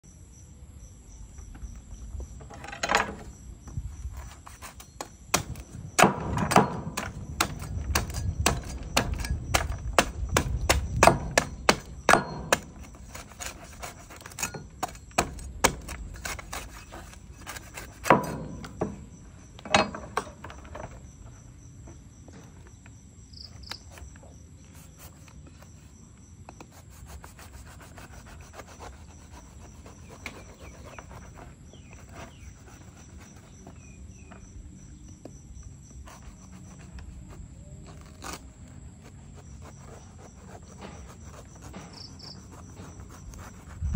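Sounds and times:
cleaver chopping fruit husk: 4.2s - 19.2s, 27.1s - 33.7s, 36.1s - 43.9s.

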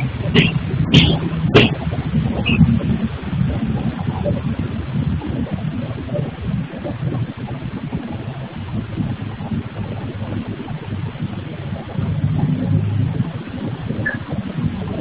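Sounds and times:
machinery rumble: 0.0s - 15.0s.

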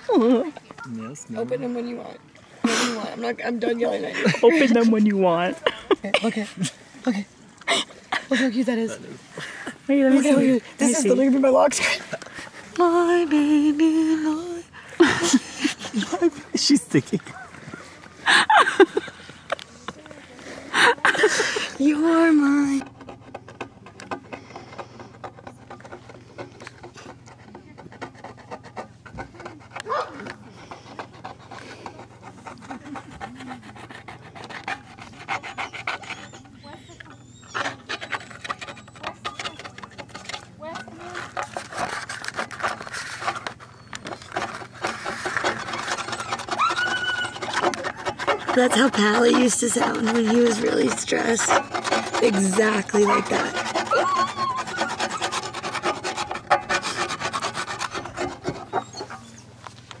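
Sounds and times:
spoon scraping a skillet: 37.5s - 59.5s.

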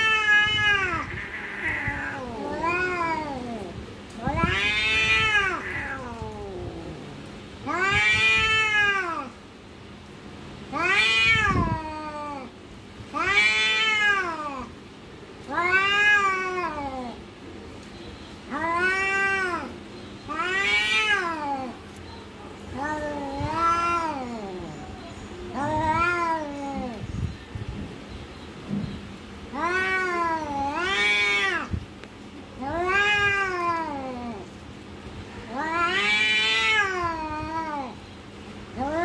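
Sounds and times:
cat yowling: 0.0s - 9.4s, 10.7s - 12.5s, 13.1s - 14.7s, 15.4s - 17.2s, 18.5s - 21.8s, 22.6s - 27.1s, 29.5s - 31.8s, 32.6s - 34.6s, 35.4s - 38.0s, 38.8s - 39.0s.

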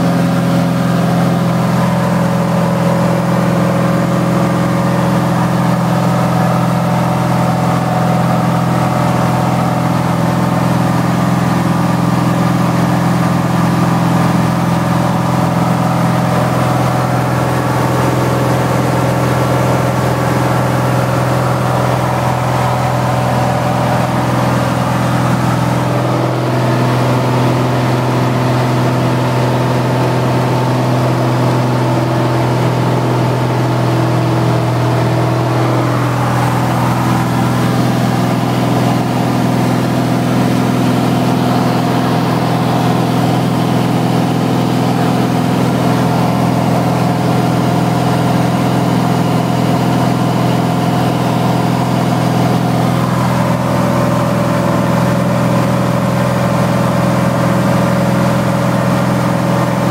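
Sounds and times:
light aircraft engine and propeller: 0.0s - 59.9s.

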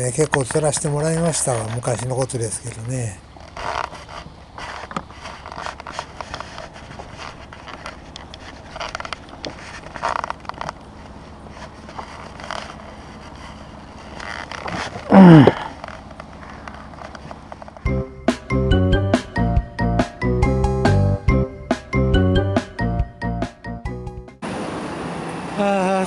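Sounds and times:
fishing gear scraping on wood: 3.3s - 17.7s.

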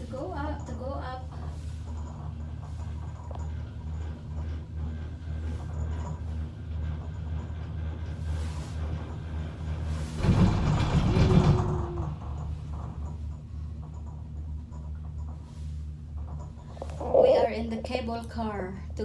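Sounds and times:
cable car hum: 0.0s - 19.0s
cable car rumble: 0.0s - 19.0s.

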